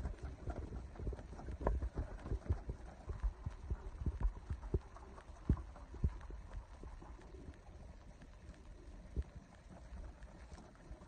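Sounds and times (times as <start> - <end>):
wings flapping: 0.0 - 7.4.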